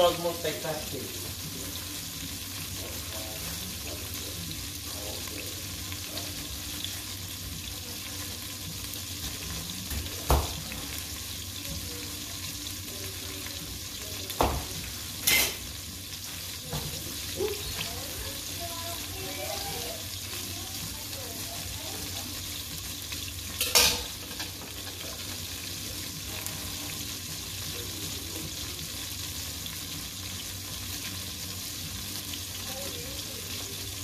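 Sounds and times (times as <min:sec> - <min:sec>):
chicken deep-frying in oil: 0:00.0 - 0:34.0
knocks on cutting board: 0:09.9 - 0:10.6, 0:14.4 - 0:14.7.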